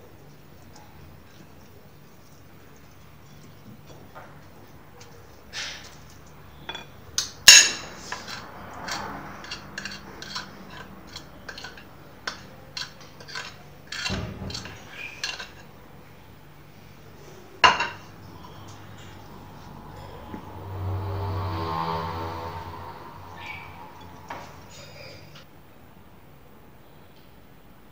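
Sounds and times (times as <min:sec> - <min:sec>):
whisk clinking against ceramic bowl: 0:00.3 - 0:15.6.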